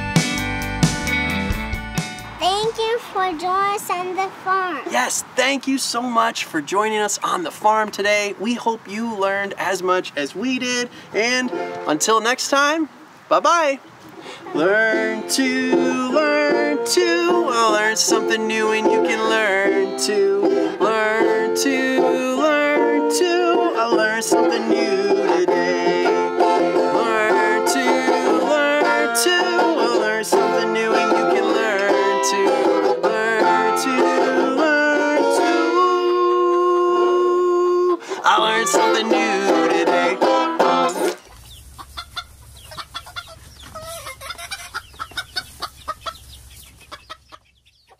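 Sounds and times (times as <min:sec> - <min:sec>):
chickens clucking: 0:13.8 - 0:22.8, 0:38.2 - 0:47.9
banjo picking a fast tune: 0:24.3 - 0:35.7, 0:38.4 - 0:41.2.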